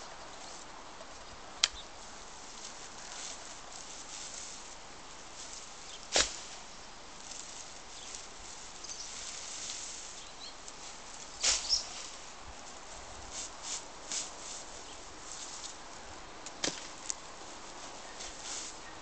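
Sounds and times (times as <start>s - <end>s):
straw rustling and crackling: 0.4s - 19.0s
straw bundle thud: 6.1s - 6.6s, 11.4s - 11.8s, 16.6s - 17.2s.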